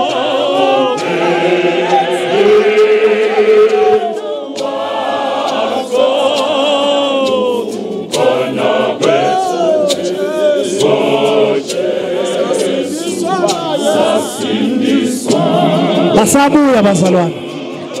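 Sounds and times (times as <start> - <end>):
choir singing a cappella: 0.0 - 18.0.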